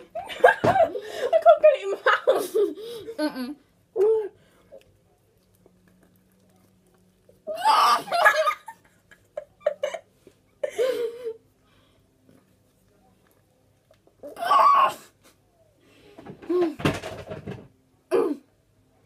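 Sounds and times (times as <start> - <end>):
girls laughing and squealing muffled: 7.5 - 8.8.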